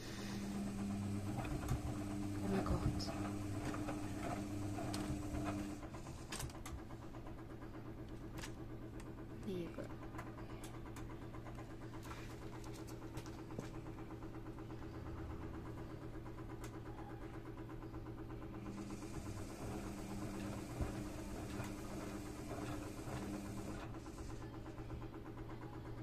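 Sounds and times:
pulsing drum hum: 0.0s - 5.9s, 17.7s - 24.1s
washing machine hum: 0.0s - 26.0s.

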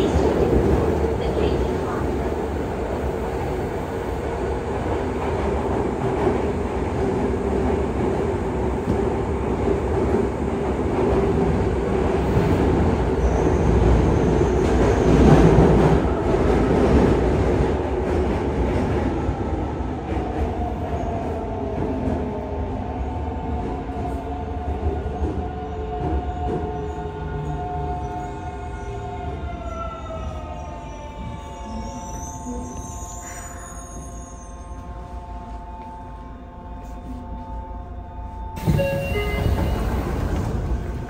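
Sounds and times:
train inverter whine: 34.7s - 41.0s
wheel and rail rumble: 35.1s - 41.0s.

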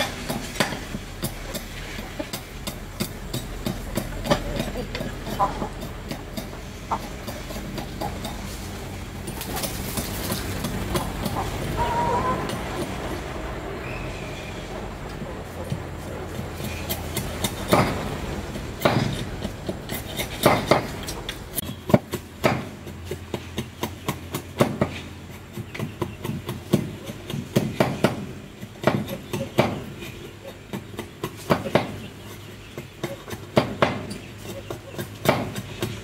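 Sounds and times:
hammer striking steel: 0.0s - 25.0s.

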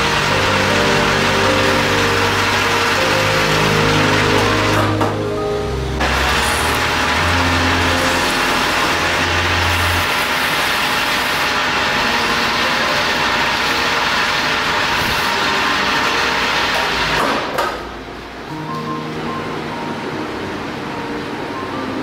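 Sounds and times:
lathe running: 0.0s - 17.5s.

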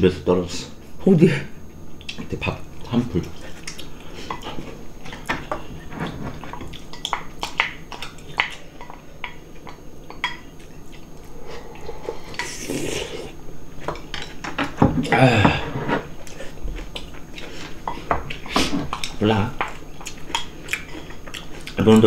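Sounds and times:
person slurping porridge: 11.0s - 13.4s.

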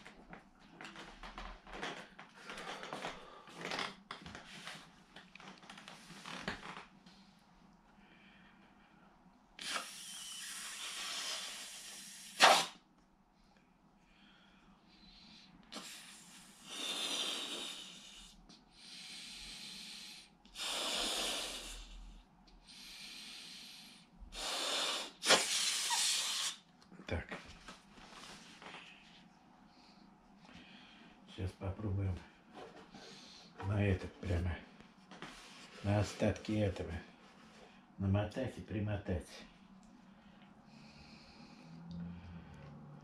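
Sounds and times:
breaths blowing up balloon: 9.6s - 12.8s, 15.7s - 22.1s, 22.7s - 26.6s
sharp puff: 9.6s - 12.8s, 25.2s - 26.6s.

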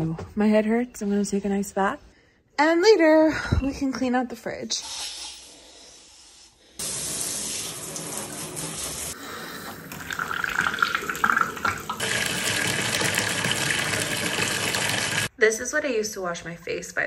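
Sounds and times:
water running into bathtub: 6.8s - 15.3s.

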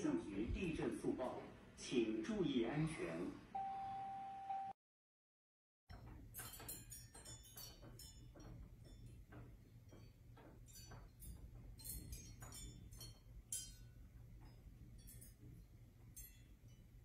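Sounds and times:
chandelier crystals tinkling: 6.3s - 17.0s.

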